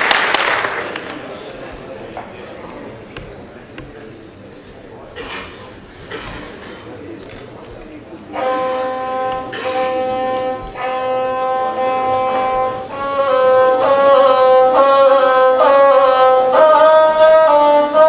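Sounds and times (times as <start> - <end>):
bowed one-string fiddle playing: 8.1 - 18.0.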